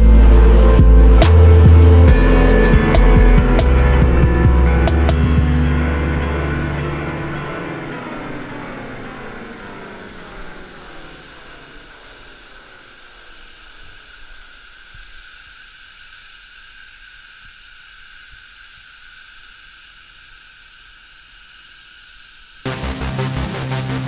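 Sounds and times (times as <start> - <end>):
loud electronic music: 0.0 - 7.8, 22.7 - 24.0
faint mechanical hum: 5.4 - 22.6.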